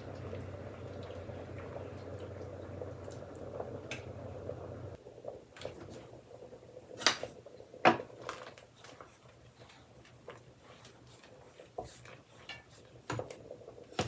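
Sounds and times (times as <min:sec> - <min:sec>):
steady low hum: 0:00.0 - 0:08.1
utensil stirring boiling noodles: 0:00.0 - 0:14.0
whisk scraping and clinking in pot: 0:08.8 - 0:13.3.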